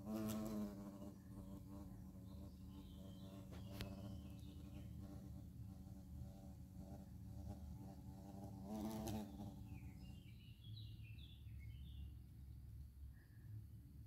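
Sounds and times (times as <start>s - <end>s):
faint bird chirps: 9.2s - 13.8s.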